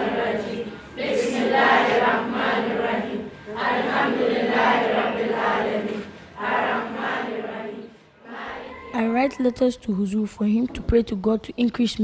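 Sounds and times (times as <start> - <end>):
children chanting in unison: 0.0 - 9.0.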